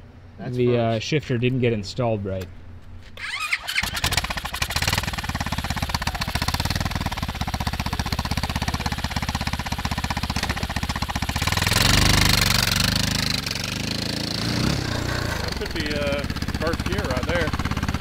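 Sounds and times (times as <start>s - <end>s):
go-kart engine idling and revving: 3.2s - 18.0s.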